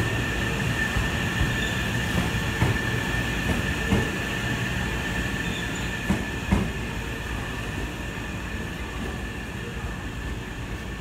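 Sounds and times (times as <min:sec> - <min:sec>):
train rumbling past: 0:00.0 - 0:11.0
train wheels squealing: 0:00.6 - 0:06.7.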